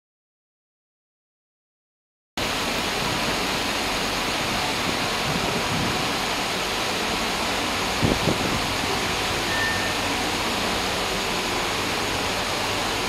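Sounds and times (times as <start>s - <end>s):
station platform background rushing: 2.4s - 13.0s.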